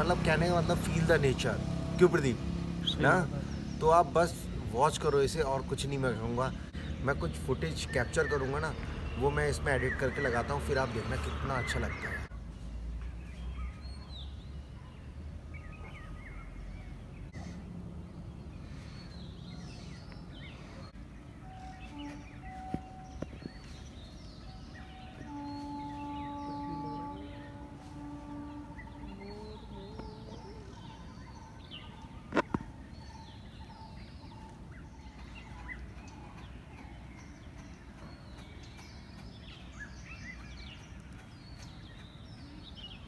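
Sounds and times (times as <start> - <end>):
birds chirping: 0.0 - 43.0.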